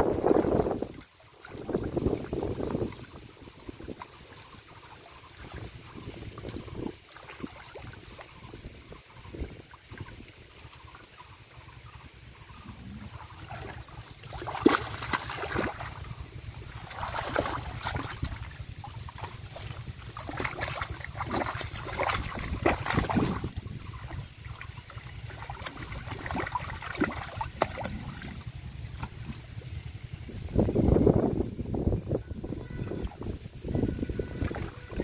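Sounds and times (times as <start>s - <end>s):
hands splashing in muddy water: 13.2s - 29.4s.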